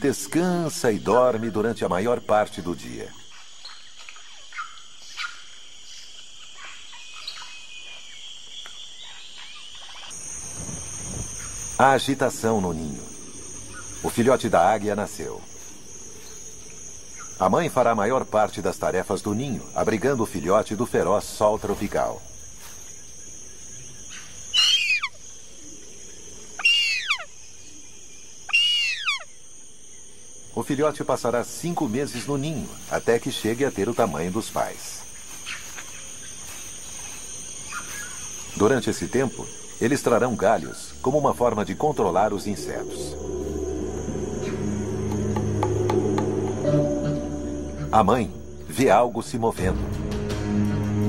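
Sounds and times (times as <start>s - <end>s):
high insect drone: 0.0s - 51.0s
eagle calling: 24.1s - 25.2s, 26.6s - 27.3s, 28.5s - 29.3s, 40.4s - 49.2s
short bird calls: 24.1s - 25.2s, 26.6s - 27.3s, 28.5s - 29.3s.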